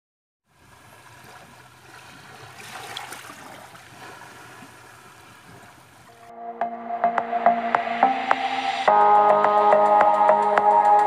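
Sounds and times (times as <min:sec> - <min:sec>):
water splashing and lapping: 0:00.5 - 0:06.3.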